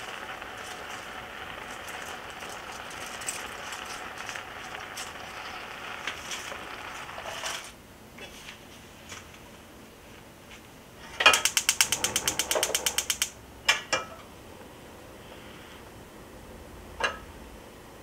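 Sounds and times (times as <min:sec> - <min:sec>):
stove igniter clicking rapidly: 0:00.0 - 0:07.2, 0:11.2 - 0:13.4.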